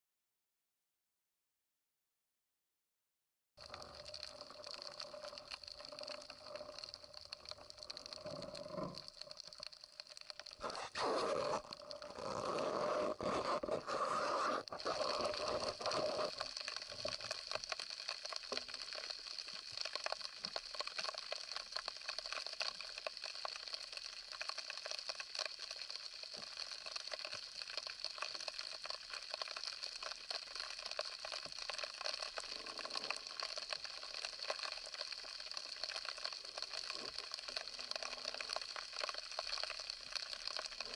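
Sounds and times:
underwater crackling clicks: 3.7s - 13.3s.

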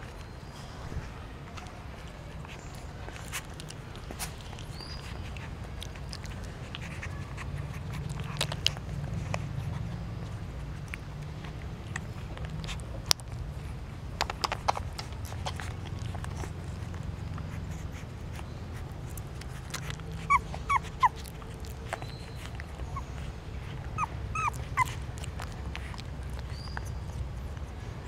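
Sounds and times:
puppies suckling clicks: 1.6s - 28.0s
puppies squeaking and whimpering: 2.5s - 10.9s, 14.9s - 28.0s.

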